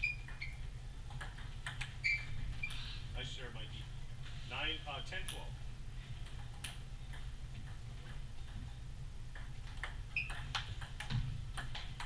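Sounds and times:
table tennis ball clicking: 1.1 - 2.0, 9.3 - 12.0.

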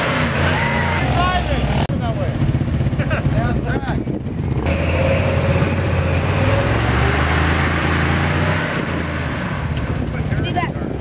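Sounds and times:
truck engine revving hard: 0.0 - 1.9, 4.4 - 10.4.

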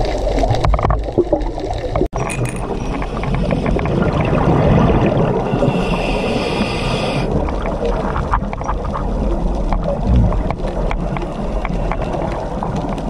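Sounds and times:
rumbling exhaled bubbles: 0.0 - 13.0
regulator hissing inhalation: 5.7 - 7.3.

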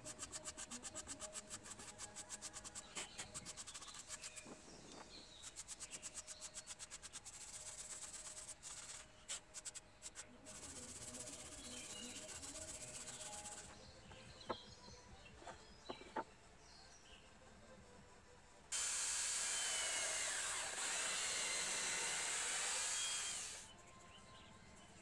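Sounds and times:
brush scrubbing wood: 0.0 - 14.3.

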